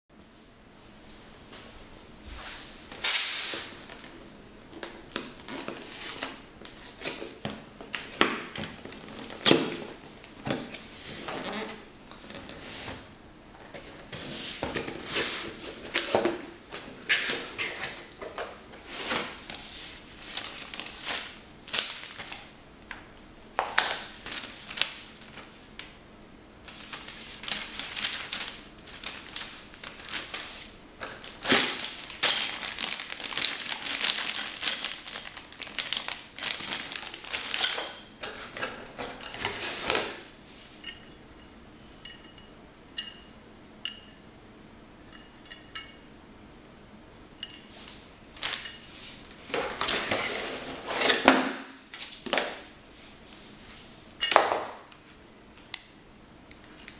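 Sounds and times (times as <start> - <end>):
packaging rustling: 4.8 - 12.7, 20.2 - 22.5, 23.7 - 25.5, 26.7 - 40.3, 48.4 - 51.3.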